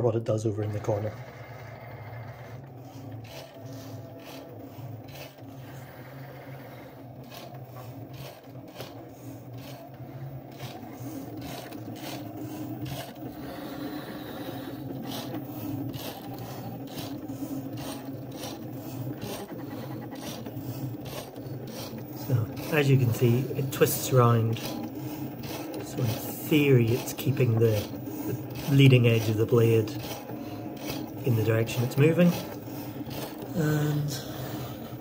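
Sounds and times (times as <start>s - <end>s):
cutting machine motor hum: 0.0s - 35.0s
blade rasping through board: 0.6s - 35.0s
carriage ticking: 0.7s - 35.0s.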